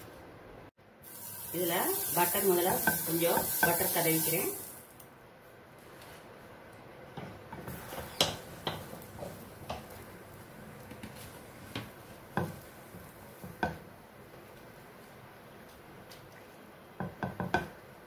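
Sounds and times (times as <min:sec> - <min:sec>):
butter sizzling in a pan: 0:01.0 - 0:04.8
spatula ticks and knocks: 0:07.2 - 0:10.0.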